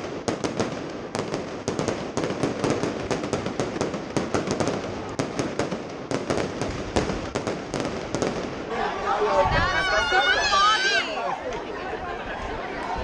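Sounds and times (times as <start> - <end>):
fireworks cracks and bangs: 0.0 - 8.7.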